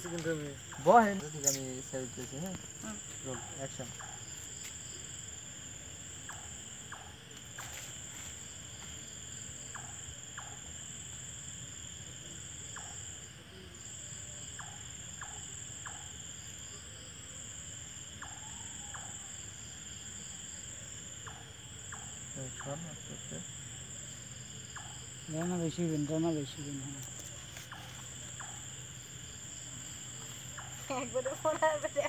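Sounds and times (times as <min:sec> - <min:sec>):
crickets trilling: 0:00.0 - 0:32.0.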